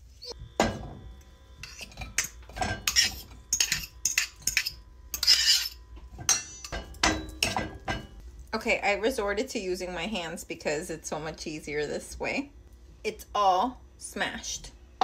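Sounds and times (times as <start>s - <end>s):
fork scraping and tapping bowl: 1.6s - 7.6s.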